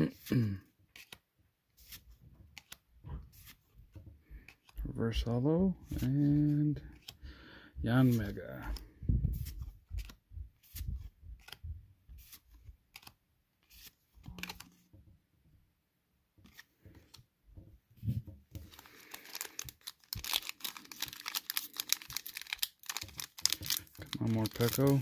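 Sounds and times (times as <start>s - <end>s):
cards flicking and tapping: 1.8s - 3.6s, 9.4s - 14.8s, 18.5s - 25.0s
foil pack crinkling and tearing: 18.6s - 25.0s.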